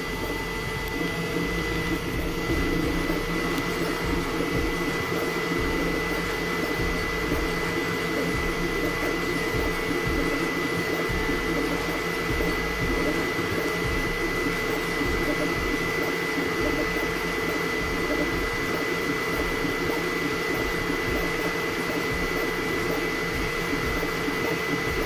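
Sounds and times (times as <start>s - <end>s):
cooling fans whirring: 0.0s - 25.0s
stepper motors humming: 0.0s - 25.0s.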